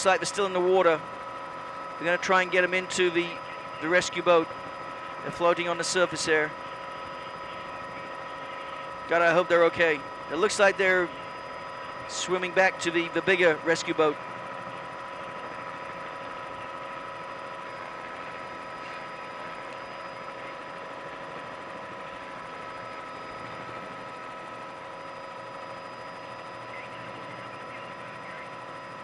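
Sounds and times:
helicopter engine and rotor: 0:00.0 - 0:29.0.

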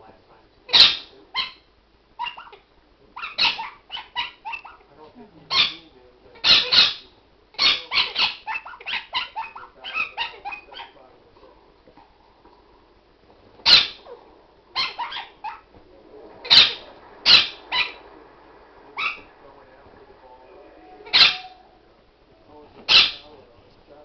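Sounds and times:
dog yapping: 0:00.7 - 0:02.6, 0:03.2 - 0:04.9, 0:05.5 - 0:05.8, 0:06.4 - 0:07.0, 0:07.6 - 0:11.0, 0:13.6 - 0:15.8, 0:16.4 - 0:18.0, 0:19.0 - 0:19.3, 0:21.0 - 0:21.7, 0:22.9 - 0:23.3.

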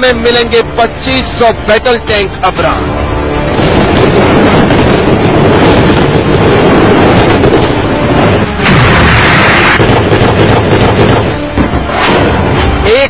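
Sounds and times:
explosions and cannon fire: 0:03.4 - 0:13.0.

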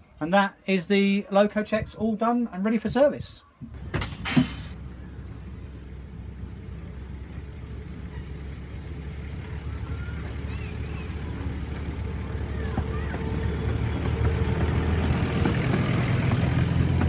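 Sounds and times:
diesel locomotive engine drone: 0:03.7 - 0:17.0
faint bird chirps: 0:09.4 - 0:11.4.

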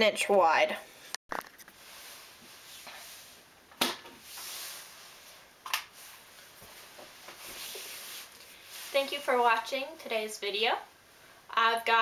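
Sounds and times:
faint room hiss: 0:00.1 - 0:12.0.

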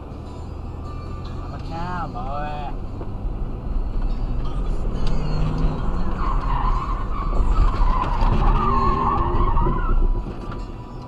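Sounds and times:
car engine and road rumble: 0:00.0 - 0:11.0
car tyres squealing: 0:03.8 - 0:10.8.

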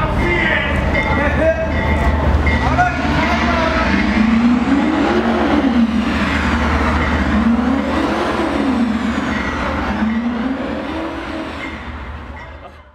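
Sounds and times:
car engine revving: 0:02.3 - 0:12.4
spinning tyres hissing: 0:02.6 - 0:12.2.

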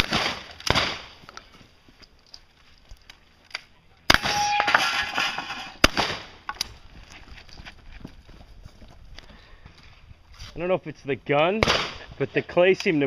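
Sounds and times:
gunshot cracks: 0:00.0 - 0:01.1, 0:04.1 - 0:04.8, 0:05.8 - 0:06.3, 0:11.6 - 0:12.0.

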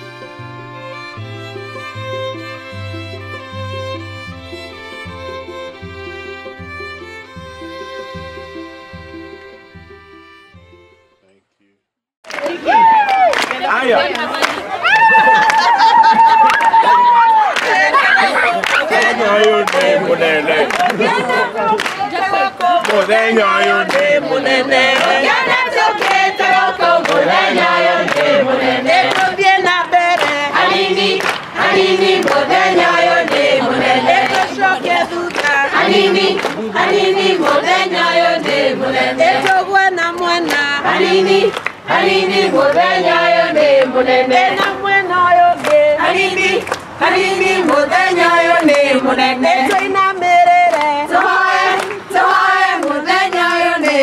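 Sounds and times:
chorus singing: 0:17.1 - 0:54.0.

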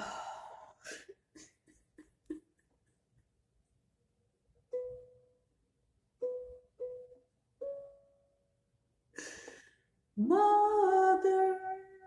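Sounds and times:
ukulele notes plucked: 0:04.7 - 0:05.4, 0:06.2 - 0:08.4.

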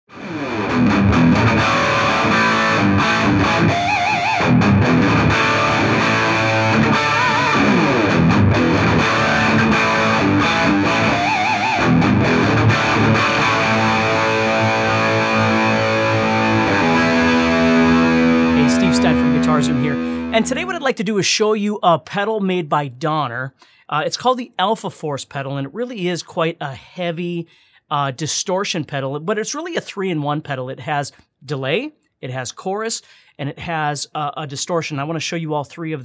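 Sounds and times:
distorted electric guitar lead: 0:00.1 - 0:20.9.

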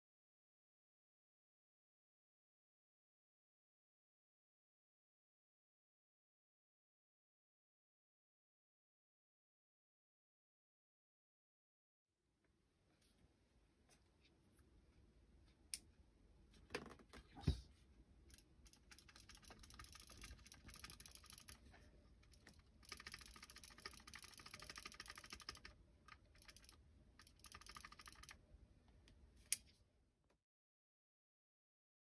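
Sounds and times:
rapid mechanical clicking: 0:18.3 - 0:28.4.

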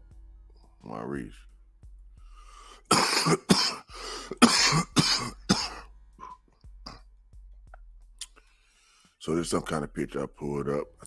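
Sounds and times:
person coughing: 0:02.9 - 0:07.1
throat clearing: 0:02.9 - 0:07.1.

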